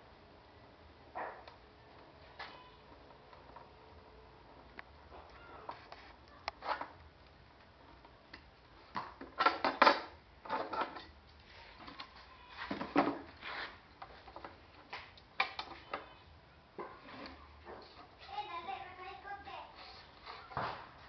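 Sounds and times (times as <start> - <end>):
wood knocking and scraping on wood: 11.7 - 16.1.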